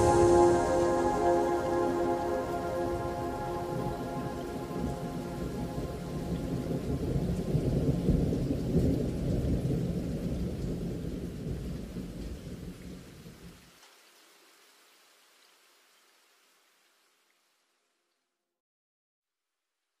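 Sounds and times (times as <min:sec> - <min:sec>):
thunder rumbling: 0:00.0 - 0:12.7
rain: 0:00.0 - 0:18.3.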